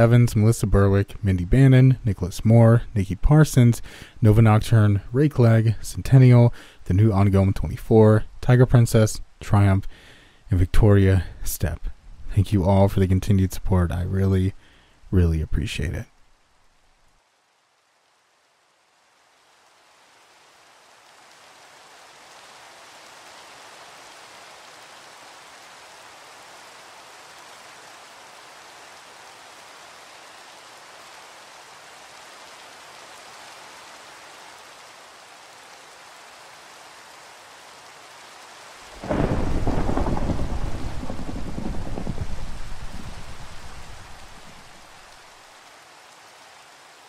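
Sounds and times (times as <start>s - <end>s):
rain hiss: 0.0s - 47.0s
thunder clap and rumble: 39.0s - 45.0s.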